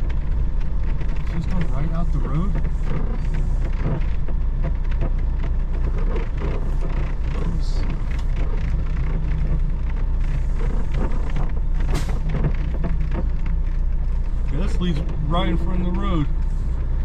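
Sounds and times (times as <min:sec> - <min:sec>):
light clicks and rattles: 0:00.0 - 0:17.0
truck diesel engine running: 0:00.0 - 0:17.0.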